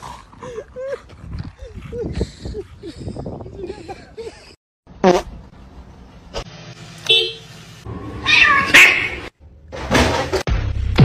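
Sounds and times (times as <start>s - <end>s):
cats yowling and meowing: 8.2s - 9.1s.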